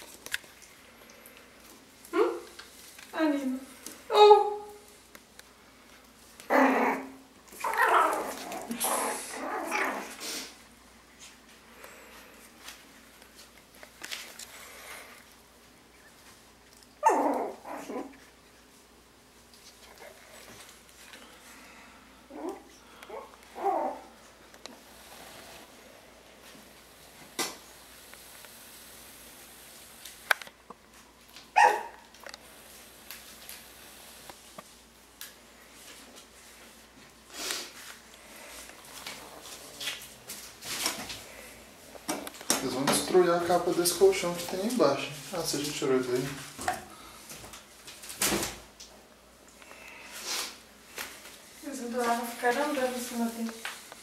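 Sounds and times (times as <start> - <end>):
puppies growling: 6.4 - 10.4, 16.9 - 18.4, 22.2 - 24.3, 38.3 - 40.3
puppy barking: 31.6 - 32.0.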